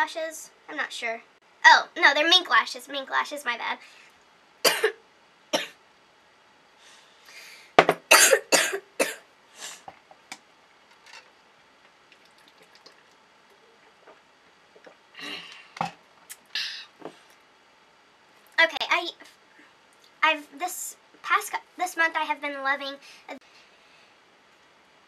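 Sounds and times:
woman coughing: 0:04.6 - 0:05.0, 0:08.1 - 0:09.2.

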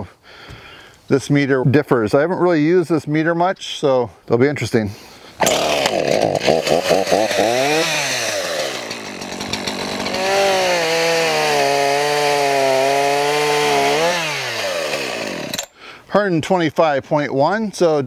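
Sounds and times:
chainsaw revving: 0:05.4 - 0:15.7.

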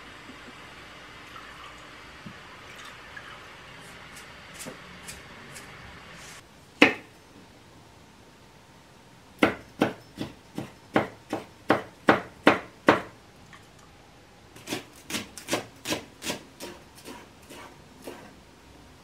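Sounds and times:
knife chopping on wooden board: 0:06.8 - 0:07.1, 0:09.4 - 0:13.1, 0:14.6 - 0:18.3.

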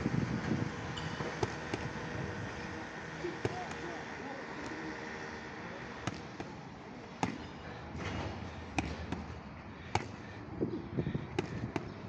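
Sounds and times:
boxing gloves slapping mitts: 0:01.3 - 0:02.0, 0:06.0 - 0:06.6, 0:07.2 - 0:10.2, 0:11.3 - 0:12.0.

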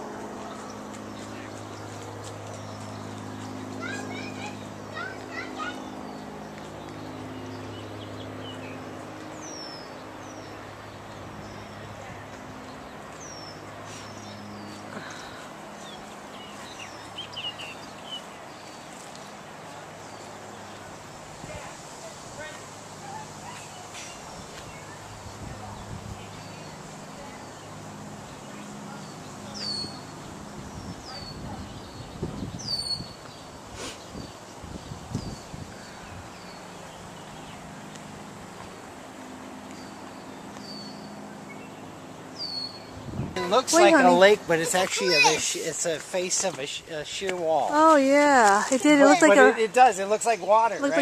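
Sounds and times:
small birds chirping: 0:00.3 - 0:51.0
bird chirping: 0:12.7 - 0:20.9, 0:28.3 - 0:38.0.

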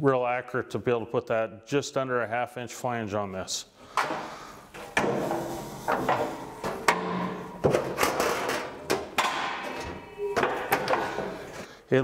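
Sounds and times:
metal bender clanking: 0:04.9 - 0:11.5
sheet metal rattling: 0:04.9 - 0:11.5.

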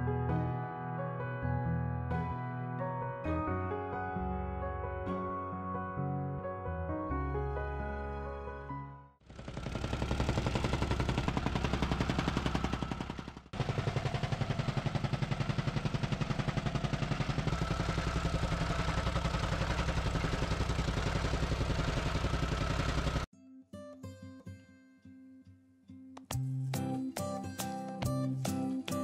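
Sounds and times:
rammer pounding soil: 0:09.2 - 0:23.3.

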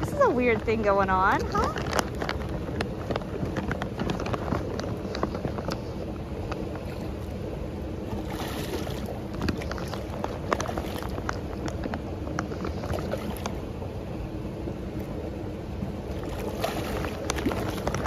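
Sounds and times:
steady low rumble: 0:00.0 - 0:18.0
fish splashing at water surface: 0:01.8 - 0:13.8, 0:16.0 - 0:18.0.

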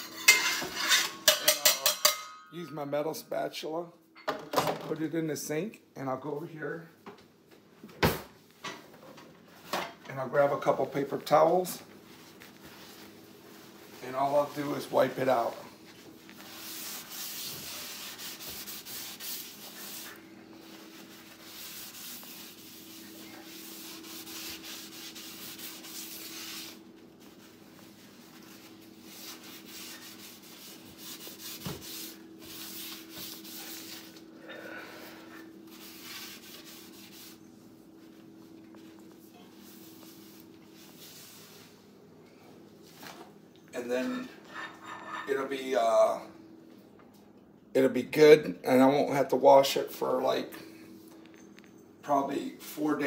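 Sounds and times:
paper towel rubbing skillet: 0:10.6 - 0:34.3, 0:35.4 - 0:38.2.

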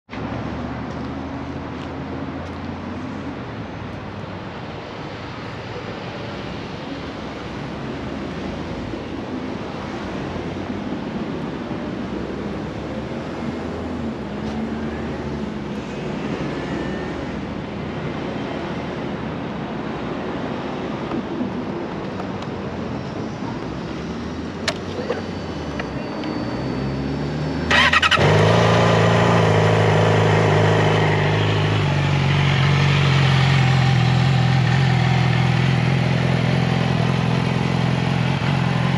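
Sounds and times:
street traffic: 0:00.0 - 0:38.9
motorcycle engine starting and idling: 0:27.7 - 0:38.9.

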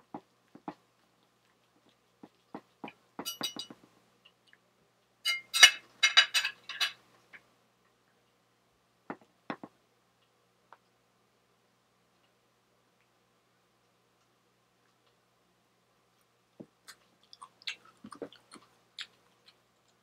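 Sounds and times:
metal clinking on plate: 0:03.2 - 0:03.8, 0:05.3 - 0:07.0
cutlery clicking and scraping: 0:05.3 - 0:07.0.

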